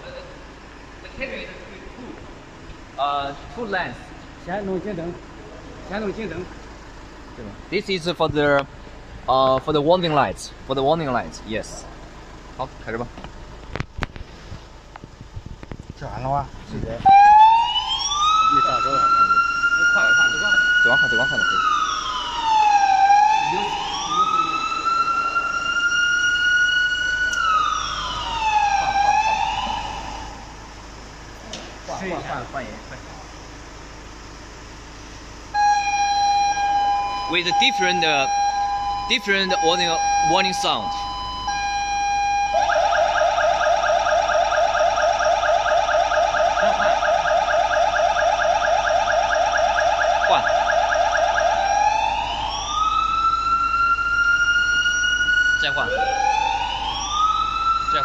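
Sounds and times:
electronic warning siren wailing: 0:17.0 - 0:30.7, 0:35.5 - 0:58.0.

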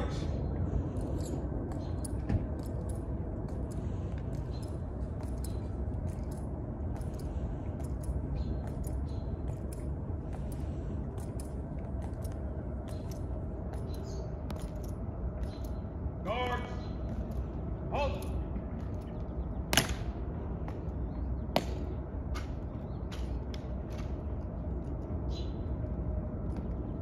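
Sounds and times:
low background rumble: 0:00.0 - 0:27.0
marching footsteps on stone: 0:01.0 - 0:15.8.

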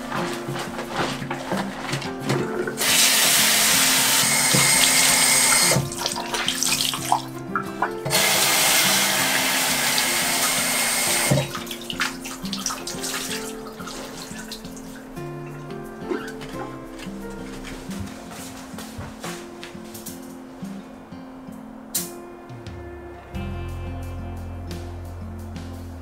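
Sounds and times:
washing cloths by hand: 0:00.0 - 0:20.1
soft background music: 0:00.0 - 0:26.0
sink tap running: 0:01.0 - 0:14.8.

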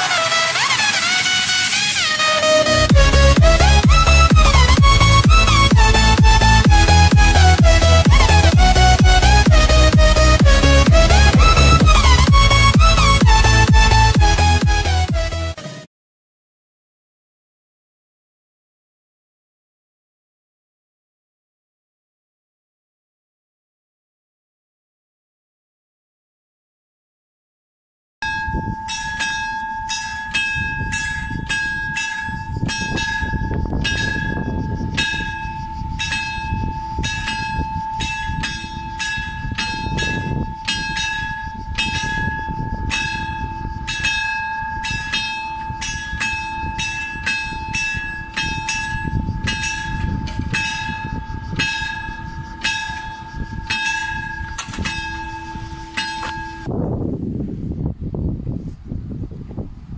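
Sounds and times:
low rumble: 0:02.9 - 0:15.4
level crossing bell ringing: 0:28.2 - 0:56.7.

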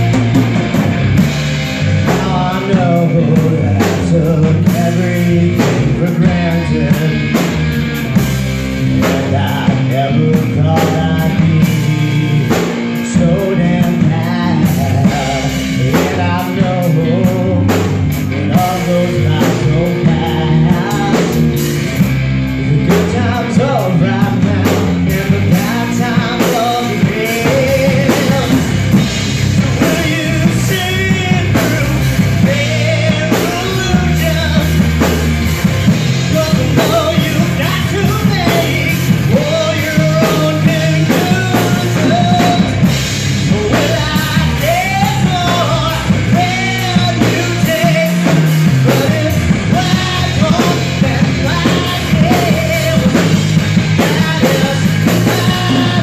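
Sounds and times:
drum kit: 0:00.0 - 0:56.0
electric bass: 0:00.0 - 0:56.0
electric guitar: 0:00.0 - 0:56.0
man singing: 0:00.0 - 0:56.0.

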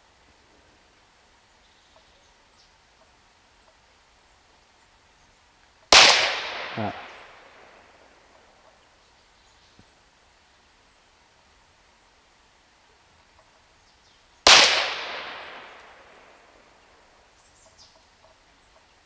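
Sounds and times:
air pistol shot: 0:05.9 - 0:07.2, 0:14.5 - 0:15.9.

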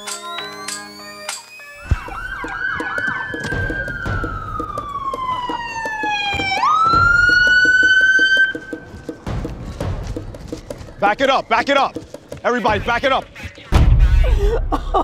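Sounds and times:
police siren yelping and wailing: 0:01.0 - 0:08.6.

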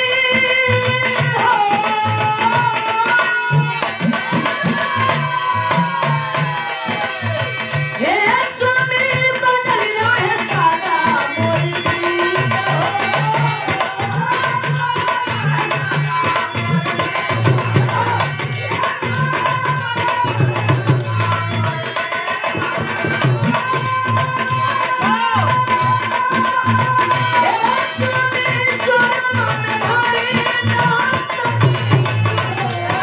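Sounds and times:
drums beating: 0:00.0 - 0:33.0
woman singing into a microphone: 0:00.0 - 0:33.0.

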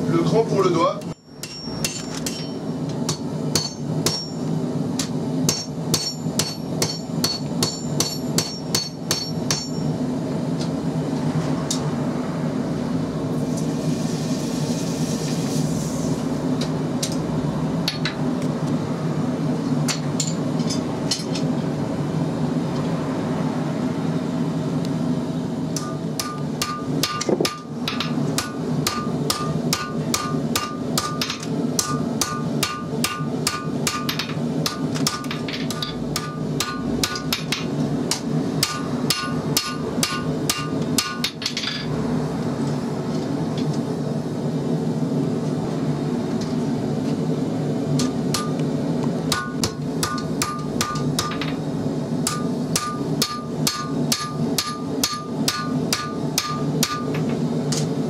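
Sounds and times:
steady low hum: 0:00.0 - 0:58.0
hammer ringing on anvil: 0:01.2 - 0:04.5, 0:05.5 - 0:10.0, 0:25.8 - 0:41.9, 0:49.3 - 0:51.6, 0:52.2 - 0:57.2.

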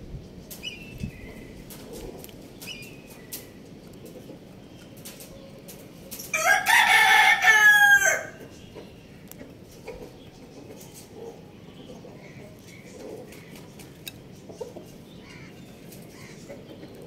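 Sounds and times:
rooster crowing: 0:06.3 - 0:08.4.

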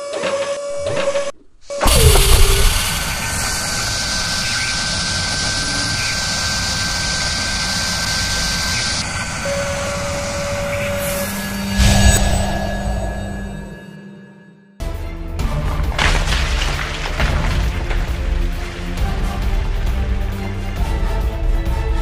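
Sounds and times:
drill whining into metal: 0:00.2 - 0:12.2.

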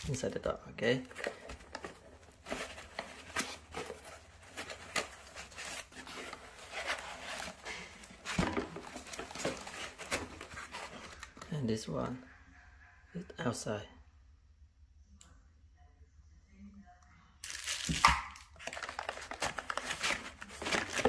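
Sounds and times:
hands rummaging in packaging: 0:01.0 - 0:11.5, 0:17.4 - 0:21.0.

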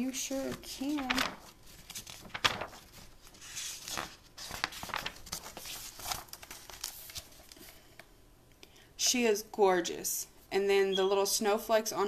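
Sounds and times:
paper pages rustling: 0:00.3 - 0:07.8.

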